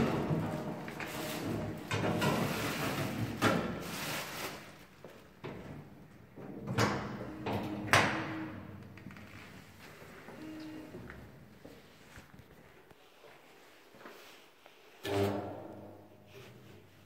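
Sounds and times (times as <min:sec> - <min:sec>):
plastic bin liner rustling: 0:00.0 - 0:05.2.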